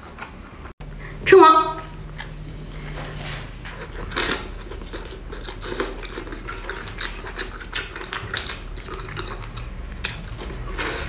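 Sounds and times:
chewing and biting: 3.6 - 11.0.

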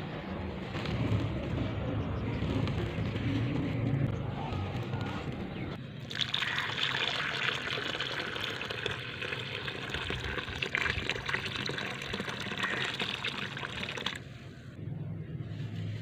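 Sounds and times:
muddy water bubbling: 6.1 - 14.3
water pouring and splashing: 6.1 - 14.3.

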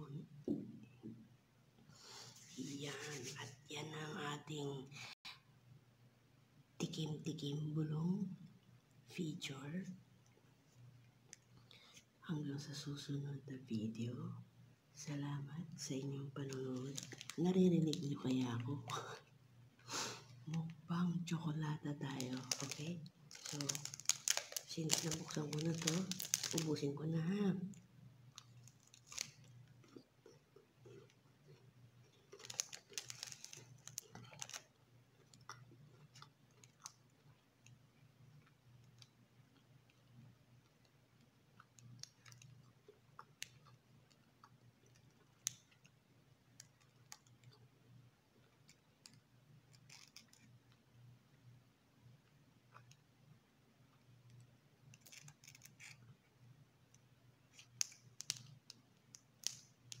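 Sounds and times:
faint low hum: 0.0 - 60.0
foil wrapper crinkling: 16.5 - 18.2, 22.0 - 26.8, 28.4 - 29.6, 32.3 - 34.7, 49.7 - 50.5, 54.9 - 56.0.

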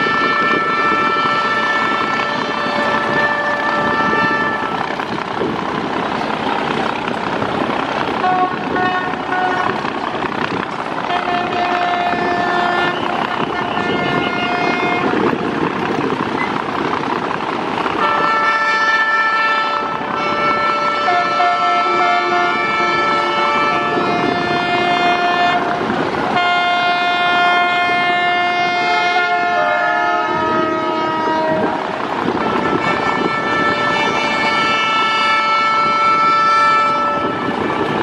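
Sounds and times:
boat horn blasts: 0.0 - 5.0, 8.2 - 9.9, 11.0 - 15.3, 18.0 - 31.8, 32.4 - 38.0
engine noise: 0.0 - 38.0.

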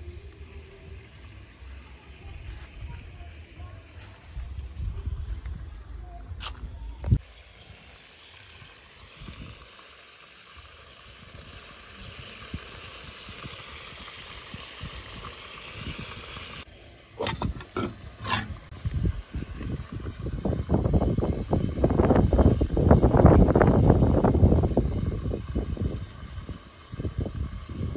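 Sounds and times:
pot of food sizzling: 0.0 - 5.9, 7.2 - 27.9
bowl knocking against metal pot: 17.2 - 18.6.

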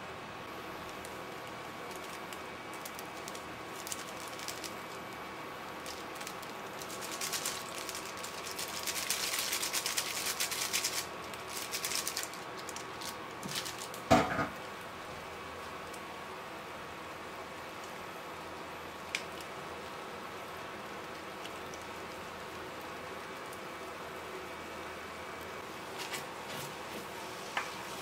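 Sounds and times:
faint steady hum: 0.0 - 28.0
foil sachets crinkling: 0.8 - 14.1.

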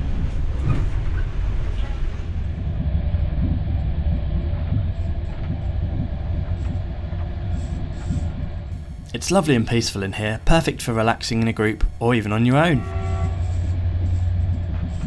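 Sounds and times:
train wheels rumbling on track: 0.0 - 8.2
faint steady hum: 2.3 - 15.0.

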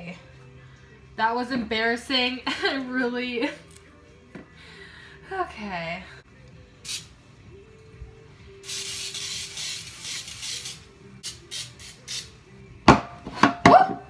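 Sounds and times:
aerosol spray hissing: 6.8 - 7.1, 8.6 - 12.3.

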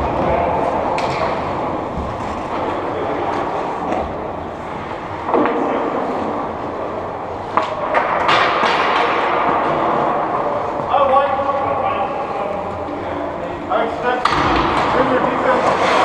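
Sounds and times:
hockey stick hitting puck: 5.2 - 6.0, 7.5 - 10.8
skates on ice: 15.0 - 16.0.

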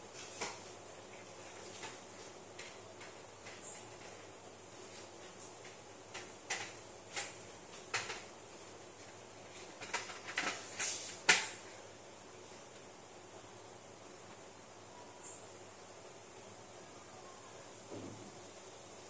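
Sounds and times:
sharp clicks and knocks: 5.6 - 8.3.

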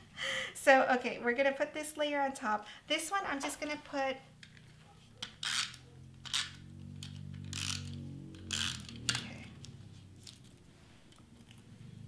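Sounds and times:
glue tape runner rasping: 5.2 - 9.2.

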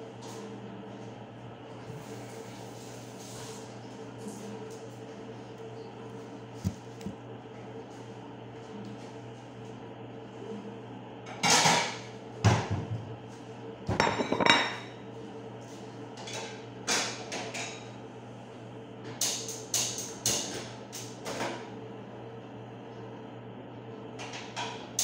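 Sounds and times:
steady low hum: 5.1 - 7.9
dishes knocking and clinking: 13.9 - 14.9
plate set down on counter: 13.9 - 14.9.

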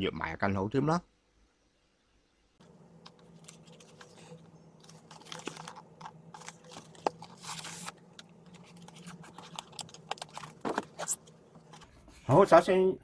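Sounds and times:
foam case crunching and scraping: 3.4 - 11.9.

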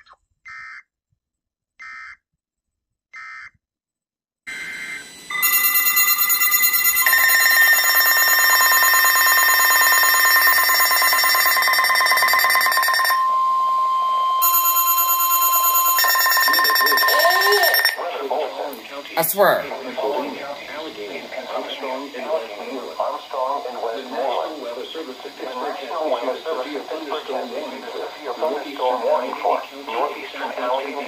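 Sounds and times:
short electronic beeps: 4.5 - 11.5, 13.2 - 17.9
shrill emergency alert tone: 4.5 - 18.0.

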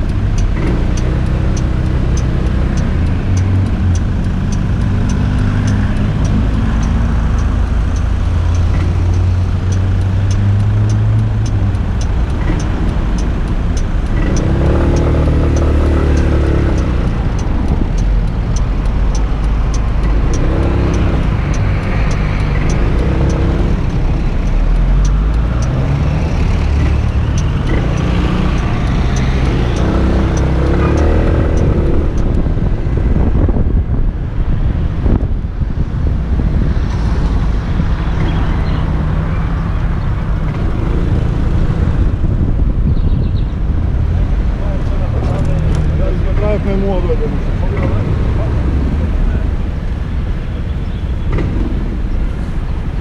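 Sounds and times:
faint ticking: 0.0 - 32.5
wind and road noise: 0.0 - 53.0.

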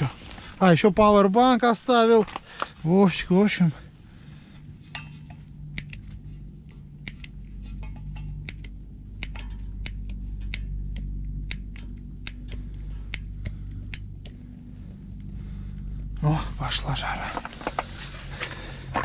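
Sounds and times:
low hum: 0.0 - 19.0
piezo igniter clicking: 5.0 - 14.5.

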